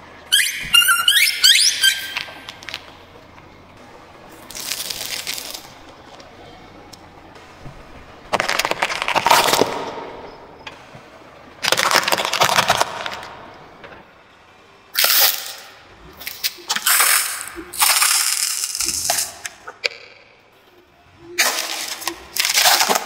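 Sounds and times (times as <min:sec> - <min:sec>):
tyre crunching objects: 0:04.4 - 0:06.3, 0:08.3 - 0:10.0, 0:16.2 - 0:19.5, 0:21.4 - 0:23.0.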